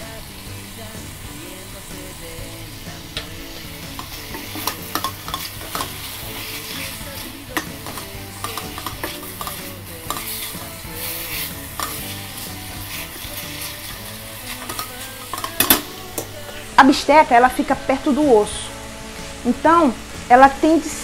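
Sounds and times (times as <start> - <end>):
meat sizzling in a pot: 0.0 - 21.0
spatula scraping a pot: 3.8 - 16.3.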